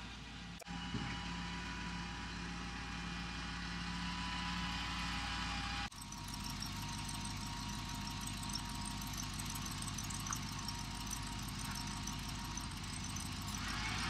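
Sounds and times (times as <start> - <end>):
crane engine idling: 5.6 - 14.0.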